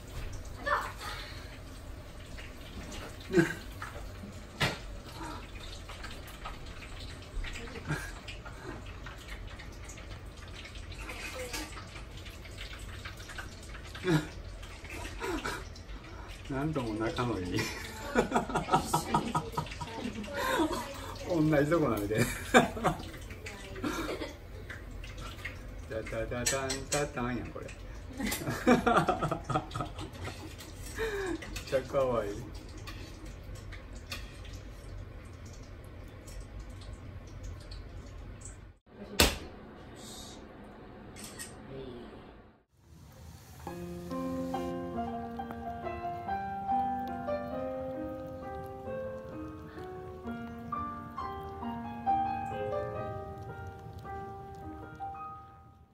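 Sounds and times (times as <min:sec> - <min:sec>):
cats licking fur: 0:44.1 - 0:55.1.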